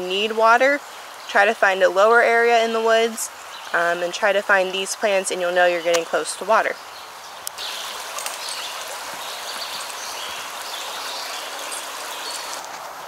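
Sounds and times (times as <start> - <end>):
stream water rushing: 0.0 - 13.0.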